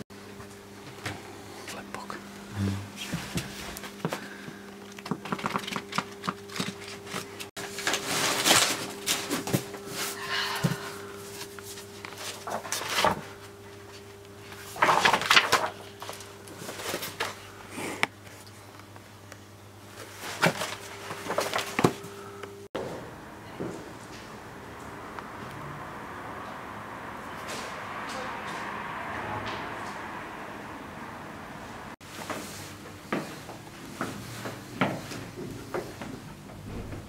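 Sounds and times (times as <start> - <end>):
steady low hum: 0.2 - 27.0
paper pages rustling: 5.0 - 9.7, 11.4 - 17.4, 20.0 - 22.0.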